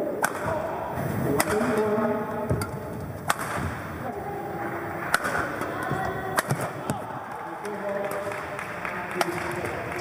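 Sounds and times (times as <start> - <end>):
hall background noise: 0.0 - 10.0
racket hitting shuttlecock: 1.3 - 3.9, 5.0 - 7.0.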